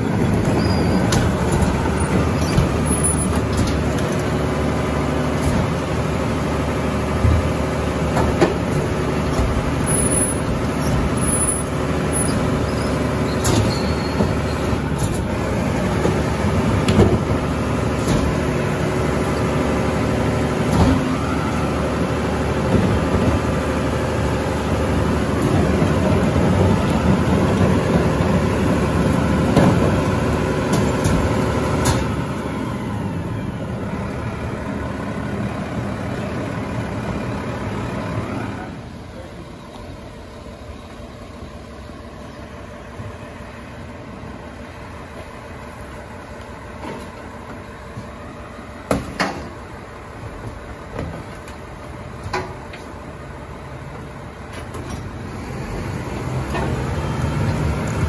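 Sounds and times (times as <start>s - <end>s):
garbage truck engine running: 0.0s - 58.0s
knocks and clanks: 0.3s - 4.3s, 48.9s - 49.6s.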